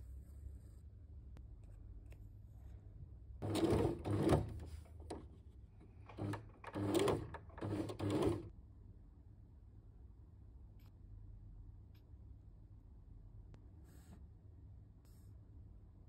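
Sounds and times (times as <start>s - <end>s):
sewing machine stitching: 3.4s - 8.5s.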